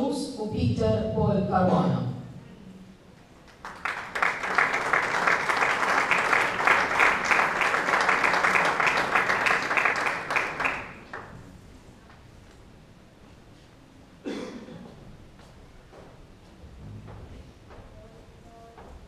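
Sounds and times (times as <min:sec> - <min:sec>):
audience applauding: 0:03.4 - 0:11.5.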